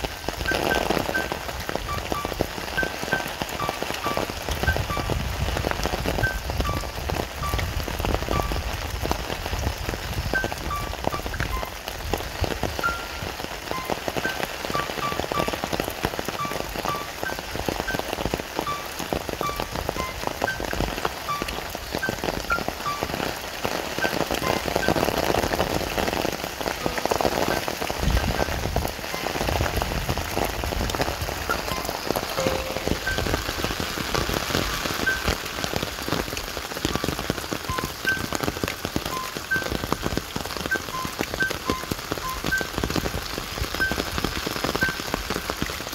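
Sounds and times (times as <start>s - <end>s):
steady rain pattering: 0.0s - 45.9s
short high plinks: 12.8s - 15.7s, 16.4s - 20.6s, 26.8s - 29.4s, 31.5s - 33.7s.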